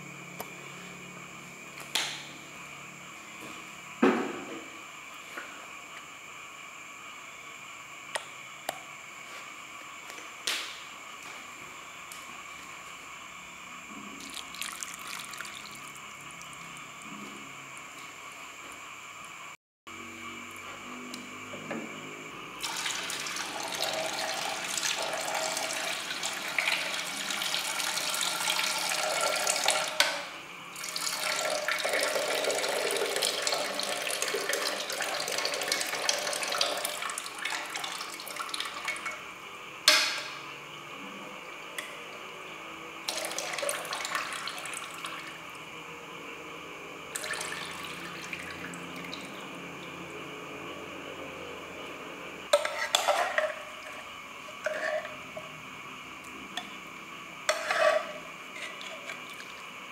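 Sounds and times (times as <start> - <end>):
water pouring into steel sink: 14.2 - 16.8, 22.6 - 30.2, 30.8 - 39.2, 43.1 - 45.4, 47.1 - 49.4
water dribbling: 14.2 - 17.1.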